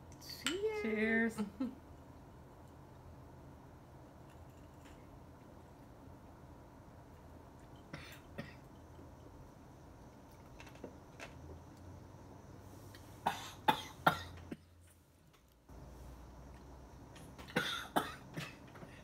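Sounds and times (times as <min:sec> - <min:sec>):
woman coughing: 0:13.3 - 0:14.7, 0:17.5 - 0:18.6.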